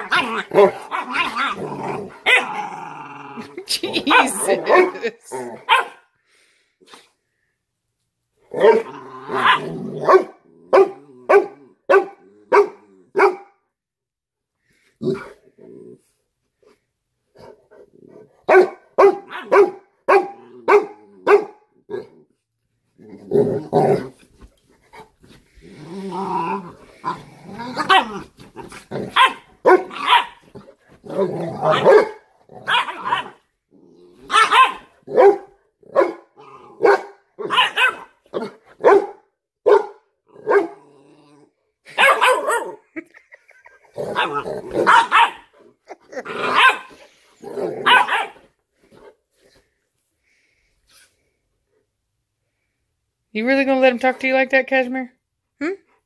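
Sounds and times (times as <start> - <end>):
dogs growling: 0.0 - 5.9, 8.4 - 13.2, 14.8 - 16.2, 20.2 - 38.8, 40.2 - 51.4
dogs barking sharply: 5.6 - 6.1, 8.6 - 13.6, 18.5 - 21.6, 29.1 - 30.5, 31.6 - 33.4, 34.3 - 40.8, 41.9 - 42.8, 44.2 - 45.6, 46.4 - 47.0, 47.8 - 48.5.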